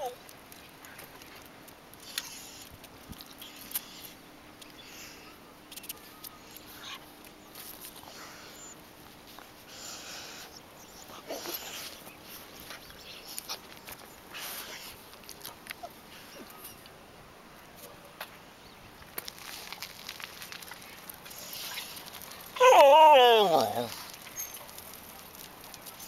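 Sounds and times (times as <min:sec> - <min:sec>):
dogs huffing: 0:09.6 - 0:12.5.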